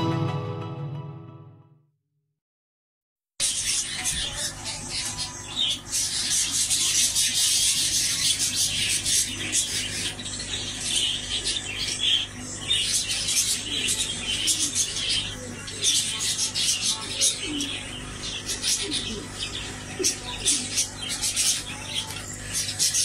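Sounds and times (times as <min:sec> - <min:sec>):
small birds chirping: 0:03.4 - 0:23.0.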